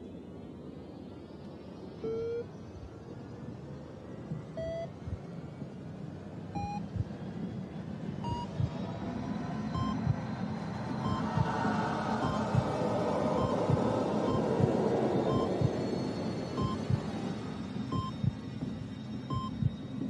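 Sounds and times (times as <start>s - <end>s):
rising electronic beeps: 2.0s - 2.5s, 4.6s - 4.9s, 6.6s - 6.9s, 8.2s - 8.8s, 9.6s - 10.2s, 10.9s - 17.1s, 17.9s - 18.4s, 19.2s - 19.8s
low rumbling drone: 6.6s - 20.0s.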